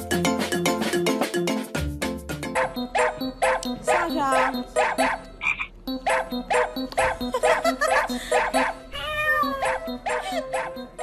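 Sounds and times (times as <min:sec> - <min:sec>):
background music with bouncy note: 0:00.0 - 0:11.0.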